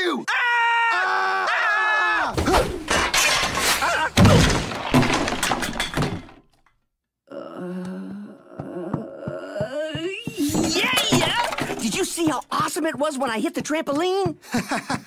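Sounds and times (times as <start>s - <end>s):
objects smashing and clattering: 2.3s - 6.7s, 10.4s - 12.4s
cartoon crash: 2.4s - 6.3s
person yelling: 9.6s - 12.4s.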